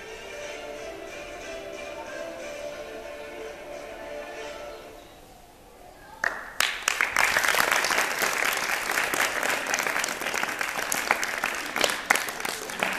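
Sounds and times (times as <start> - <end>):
audience applauding: 6.2 - 12.9.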